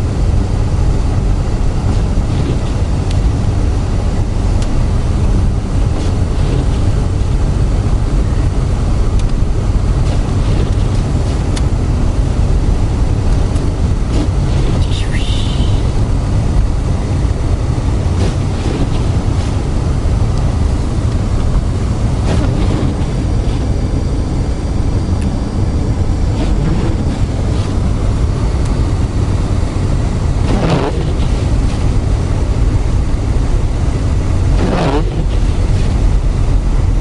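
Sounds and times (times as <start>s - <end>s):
engine and tyres rumbling: 0.0s - 37.0s
short swish: 26.4s - 27.8s.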